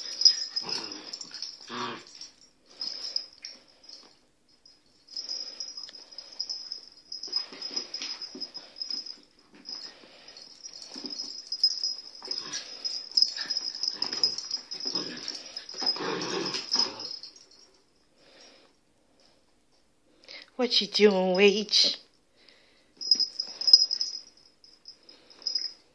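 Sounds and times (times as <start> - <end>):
dogs snuffling and scuffling: 0.0 - 17.8.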